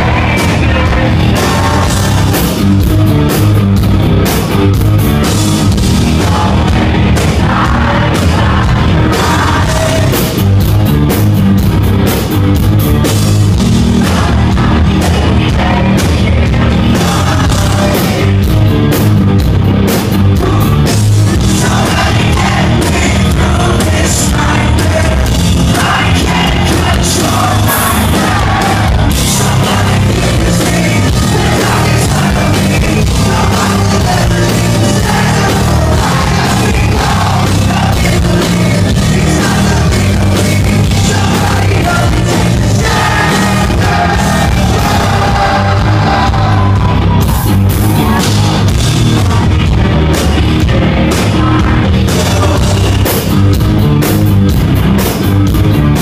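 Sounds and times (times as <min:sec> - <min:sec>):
singer singing and shouting: 0:00.0 - 0:03.4, 0:05.6 - 0:10.6, 0:20.3 - 0:53.2
hard rock band playing: 0:00.0 - 0:56.0.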